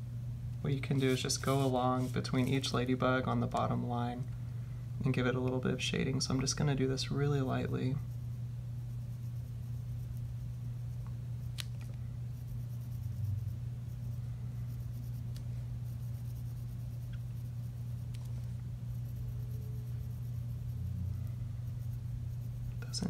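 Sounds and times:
steady low hum: 0.0 - 23.0
pencil scratching on paper: 12.3 - 23.0.

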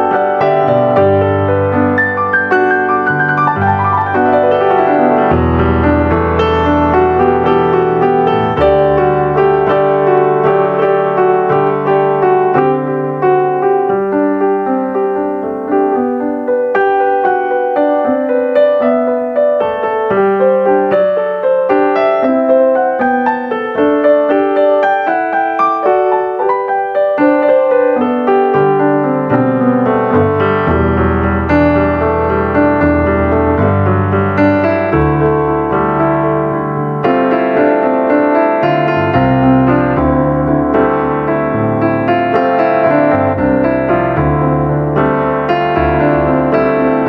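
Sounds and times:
piano music: 0.0 - 47.0.

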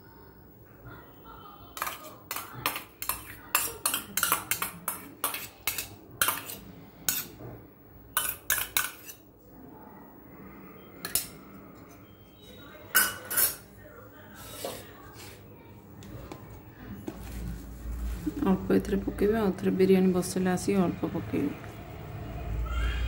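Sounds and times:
metal bowl clinking and scraping: 1.8 - 7.4, 8.2 - 9.2, 11.0 - 13.7.

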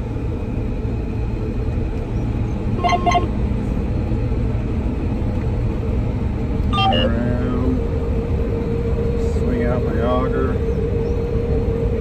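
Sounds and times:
combine harvester droning: 0.4 - 12.0
double electronic beep: 2.8 - 3.3, 6.8 - 7.2.

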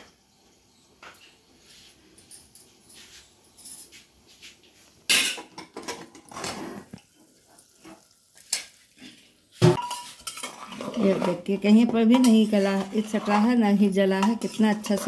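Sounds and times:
metal pressure cooker clanking: 9.8 - 15.0.

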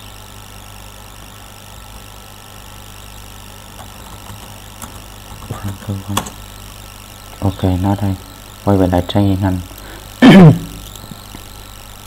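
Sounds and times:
low hum and hiss: 0.0 - 12.0
keyboard key clicks: 3.8 - 6.4.

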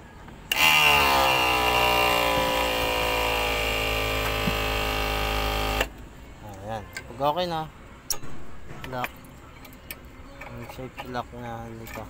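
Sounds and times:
electric pump motor whining: 0.5 - 5.9.

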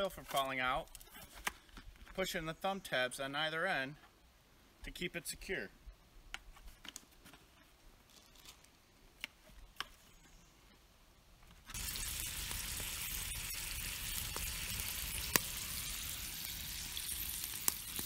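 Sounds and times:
bacon sizzling in a pan: 11.7 - 18.0.

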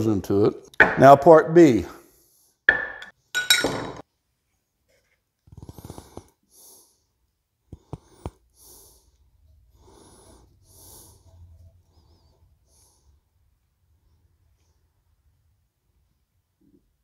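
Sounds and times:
person breathing: 5.6 - 13.3.

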